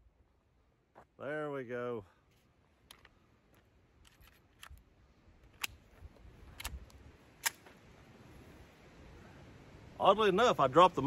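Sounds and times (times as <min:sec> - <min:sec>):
pistol clicks: 0:06.5 - 0:07.7.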